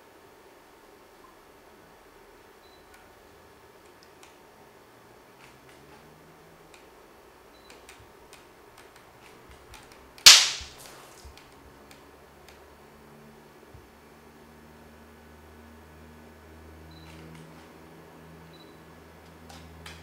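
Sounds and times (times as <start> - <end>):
loud sharp crack: 10.2 - 11.0.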